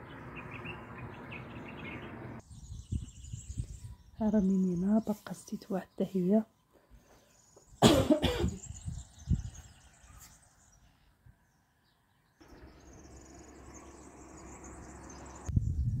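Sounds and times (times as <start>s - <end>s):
person coughing: 7.8s - 8.7s.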